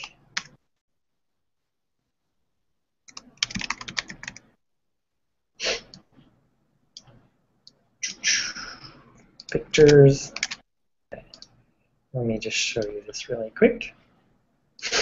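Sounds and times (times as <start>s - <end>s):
keyboard typing: 0.0s - 0.6s, 3.1s - 4.5s, 9.2s - 11.6s.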